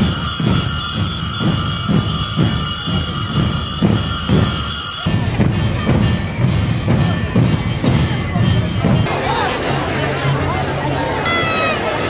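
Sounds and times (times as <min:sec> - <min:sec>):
large bells ringing: 0:00.0 - 0:05.4
drums beating a steady rhythm: 0:00.0 - 0:09.1.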